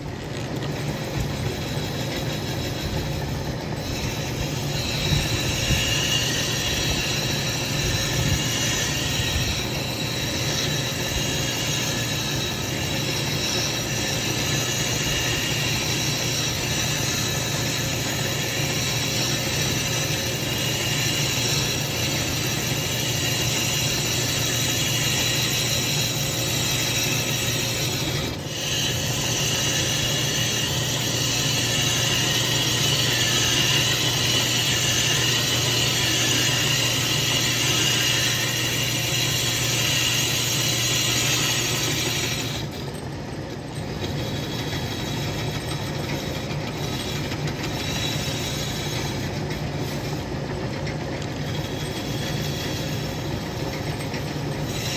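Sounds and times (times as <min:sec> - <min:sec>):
lathe motor hum: 0:00.0 - 0:54.9
lathe tool cutting hiss: 0:00.0 - 0:54.9.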